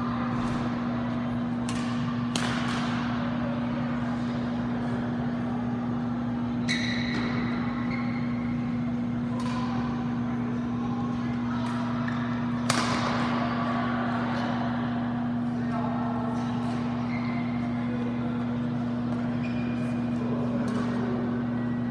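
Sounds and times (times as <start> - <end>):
steady low hum: 0.0 - 21.9
racket hitting shuttlecock: 1.6 - 3.2, 9.3 - 9.9, 11.6 - 13.4
shoe squeak on court floor: 6.6 - 8.6, 17.0 - 17.8, 19.3 - 20.1.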